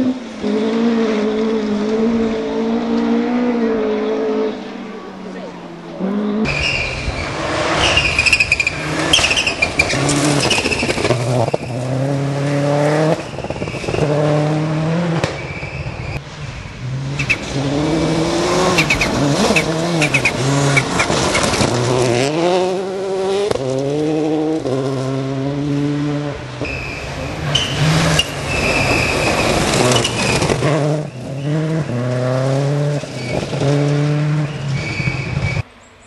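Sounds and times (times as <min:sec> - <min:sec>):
rally car engines at full throttle: 0:00.0 - 0:36.0
tyres and spraying gravel: 0:06.5 - 0:12.0, 0:26.6 - 0:35.5.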